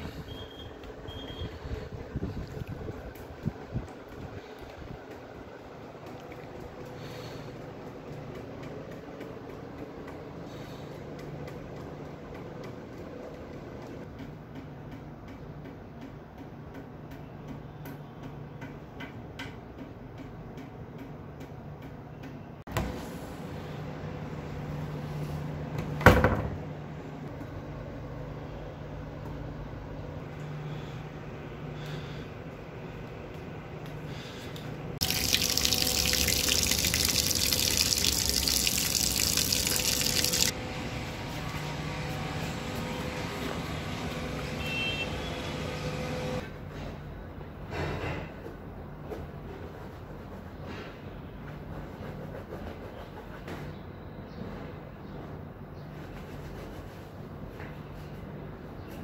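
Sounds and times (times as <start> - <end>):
tap water running into bucket: 35.0 - 40.5.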